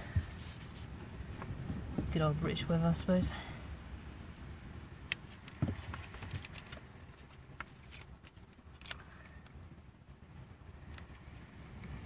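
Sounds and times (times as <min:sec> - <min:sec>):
wind rumble on microphone: 0:00.0 - 0:12.0
light clicks and rustles: 0:05.1 - 0:09.7.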